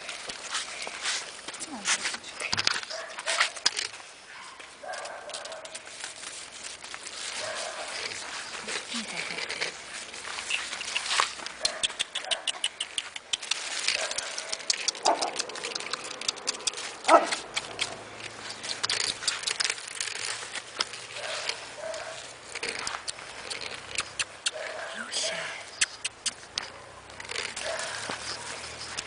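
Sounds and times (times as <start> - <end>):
paws pattering on gravel: 0.0 - 29.0.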